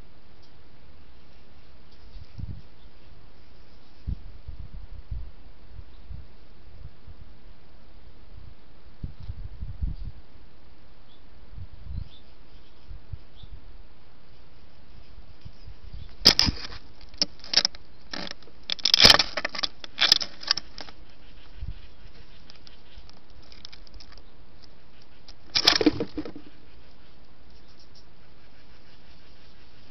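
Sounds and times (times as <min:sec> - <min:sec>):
bird scuffing and flapping: 0:16.1 - 0:21.1, 0:25.4 - 0:26.6.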